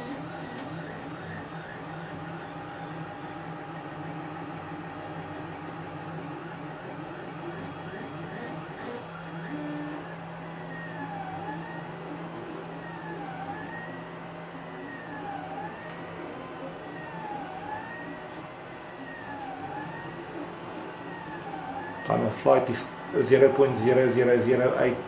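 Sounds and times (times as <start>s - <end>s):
printer steady hum: 0.0s - 25.0s
stepper motors whirring and chirping: 5.0s - 18.2s, 18.8s - 22.2s.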